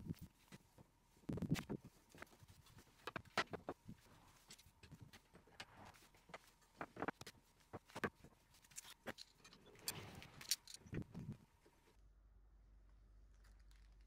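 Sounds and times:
metal clamps clicking and knocking: 8.7 - 11.1.

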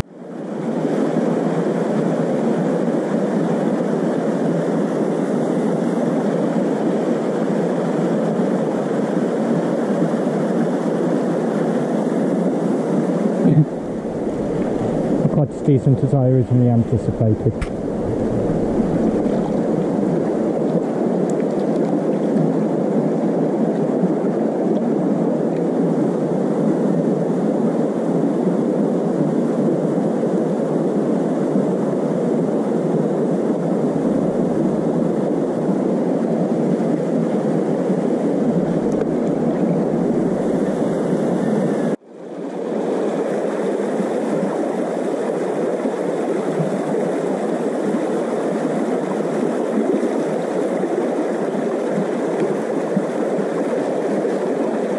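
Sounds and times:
river water running over stones: 17.2 - 22.7.

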